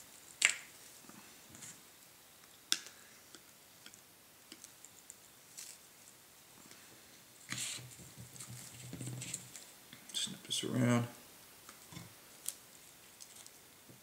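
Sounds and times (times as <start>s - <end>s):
soft rustling: 4.6s - 9.8s, 11.7s - 13.9s.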